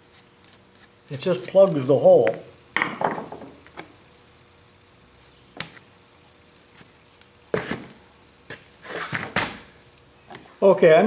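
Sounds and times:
knocks on cast iron: 0:02.8 - 0:03.5.

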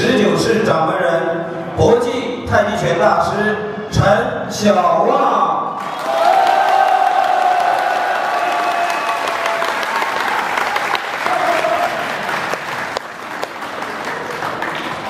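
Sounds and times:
audience applauding: 0:05.8 - 0:15.0.

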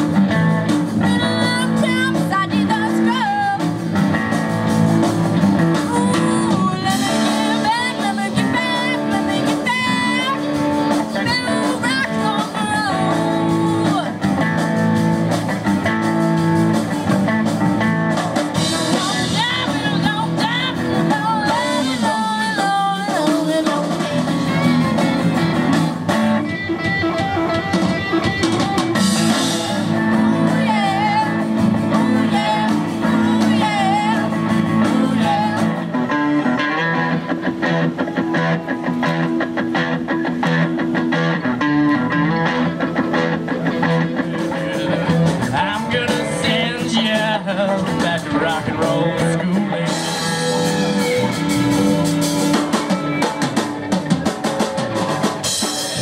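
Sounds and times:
bass guitar: 0:00.0 - 0:56.0
drum kit: 0:00.0 - 0:56.0
electric guitars: 0:00.0 - 0:56.0
girl singing: 0:05.9 - 0:14.2, 0:18.7 - 0:24.6, 0:29.6 - 0:35.8.

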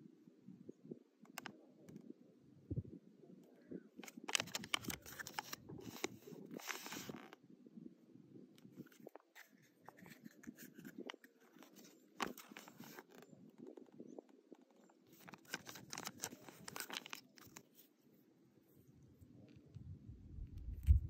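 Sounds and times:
plastic toy parts clicking: 0:04.0 - 0:06.1, 0:15.2 - 0:17.6
paper leaflet crinkling: 0:04.0 - 0:07.2, 0:08.9 - 0:13.3, 0:15.1 - 0:17.9.

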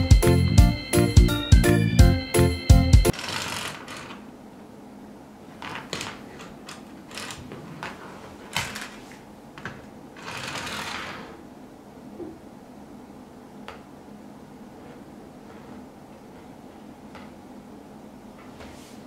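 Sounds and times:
rustling scrapes: 0:07.1 - 0:09.2, 0:10.2 - 0:11.4, 0:14.8 - 0:16.6.

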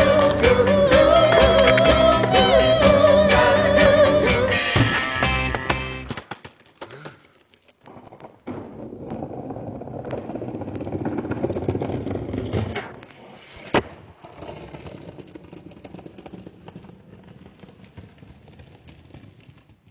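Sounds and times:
skateboard wheels rolling on paving: 0:00.0 - 0:19.9
skateboard landing crack: 0:04.7 - 0:19.8.

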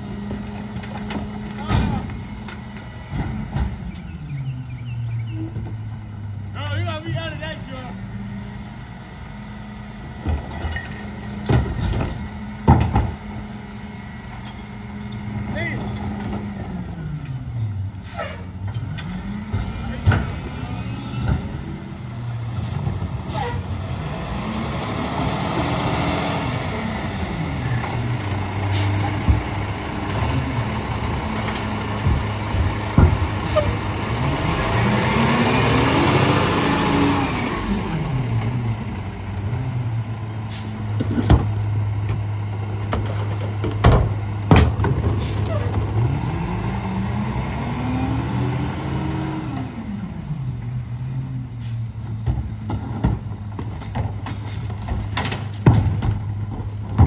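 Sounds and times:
diesel engine idling and revving: 0:00.0 - 0:57.0
bins banging into hopper: 0:52.3 - 0:57.0.

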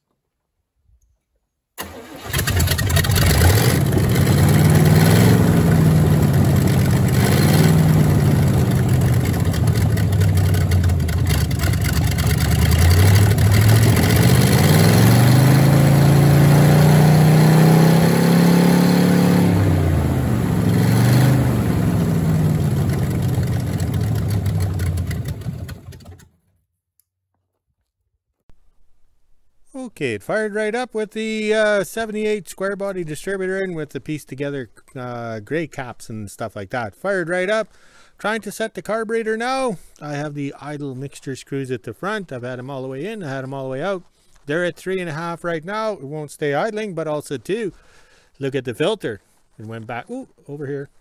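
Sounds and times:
engine revving: 0:01.8 - 0:26.3.

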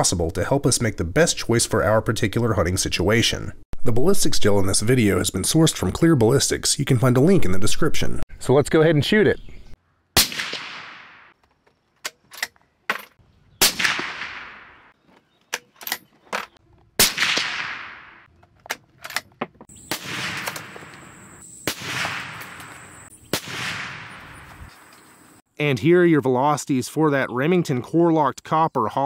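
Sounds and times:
suppressed rifle shots echoing: 0:10.2 - 0:11.3, 0:13.6 - 0:15.0, 0:17.0 - 0:18.3, 0:19.8 - 0:24.6.

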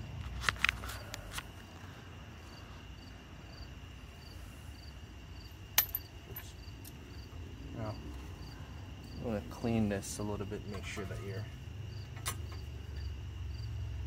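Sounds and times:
crickets chirping: 0:00.0 - 0:14.0
metal hardware clinking: 0:05.8 - 0:07.0.

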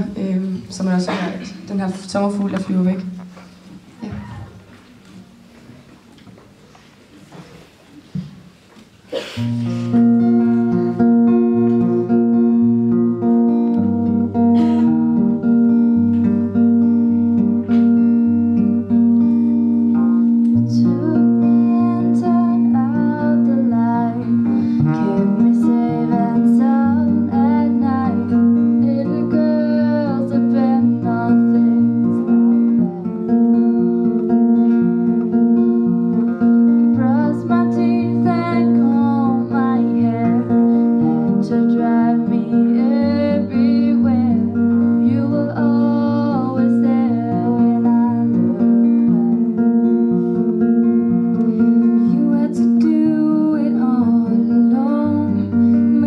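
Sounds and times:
acoustic guitar: 0:00.0 - 0:56.0
young woman singing: 0:09.4 - 0:16.2, 0:19.2 - 0:56.0.

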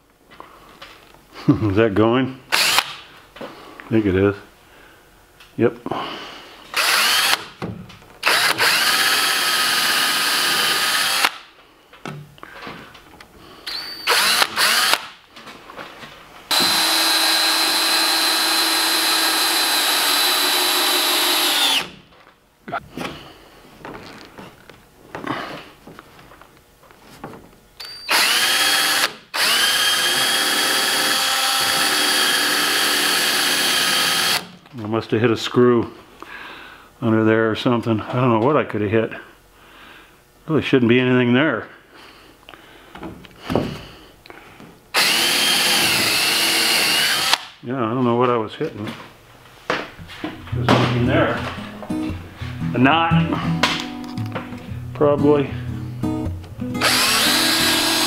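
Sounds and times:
cordless drill driving screws: 0:02.5 - 0:03.0, 0:06.7 - 0:07.6, 0:08.2 - 0:11.4, 0:13.7 - 0:15.1, 0:16.5 - 0:22.0, 0:27.8 - 0:34.5, 0:45.0 - 0:47.5, 0:56.8 - 0:58.0.

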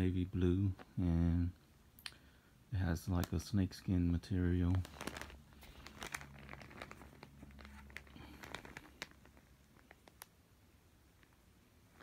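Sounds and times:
sandal handling crinkling: 0:04.4 - 0:10.4.

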